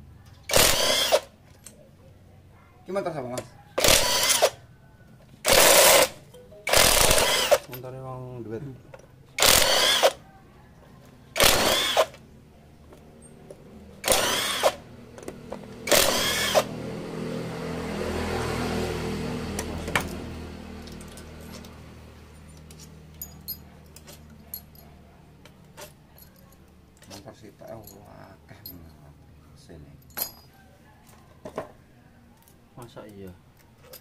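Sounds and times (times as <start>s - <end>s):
cordless drill spinning bolts: 0.5s - 1.3s, 3.8s - 4.6s, 5.4s - 6.1s, 6.7s - 7.7s, 9.4s - 10.2s, 11.4s - 12.2s, 14.0s - 14.8s, 15.8s - 16.7s.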